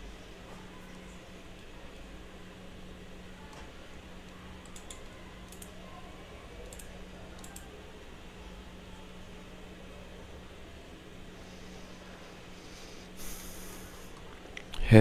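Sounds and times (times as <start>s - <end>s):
low hum and hiss: 0.0s - 15.0s
faint computer clicking: 4.3s - 5.8s, 6.6s - 7.8s.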